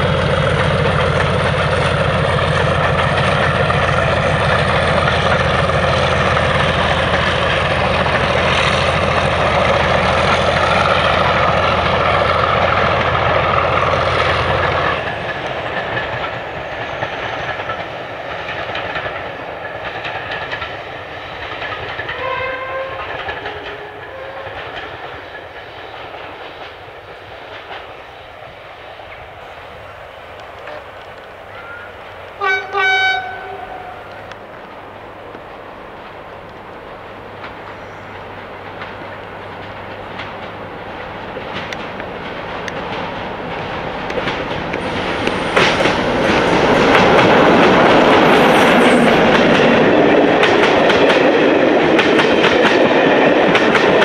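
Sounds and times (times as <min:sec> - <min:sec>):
diesel train passing: 0:00.0 - 0:54.0.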